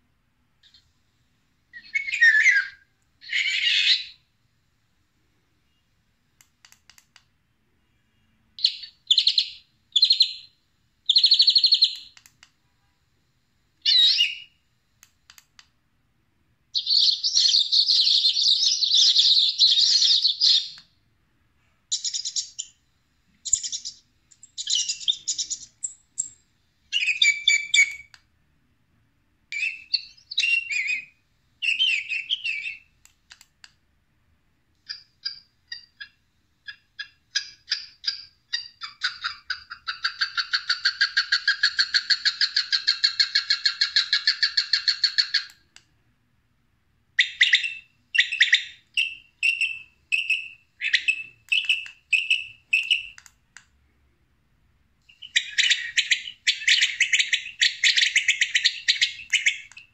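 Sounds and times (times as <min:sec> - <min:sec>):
recorded bird calls from speaker: 0:01.7 - 0:04.3, 0:07.9 - 0:12.2, 0:13.8 - 0:14.6, 0:16.7 - 0:20.9, 0:23.4 - 0:28.1, 0:29.5 - 0:33.0, 0:34.8 - 0:45.6, 0:47.2 - 0:53.2, 0:55.1 - 0:59.9.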